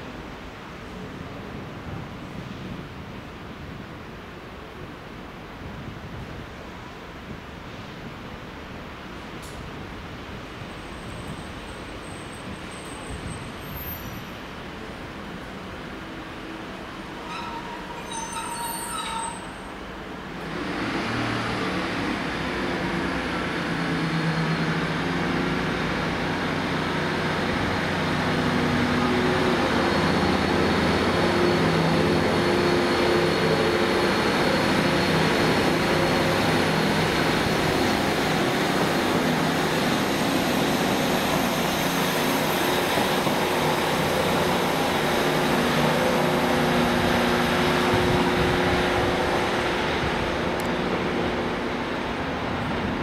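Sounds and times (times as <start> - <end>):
diesel train engine humming: 22.1 - 53.0.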